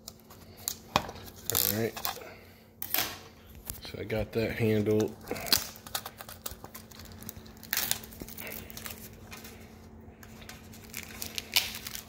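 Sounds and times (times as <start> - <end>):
plastic shrink wrap crinkling: 0.0 - 2.2, 4.8 - 12.0.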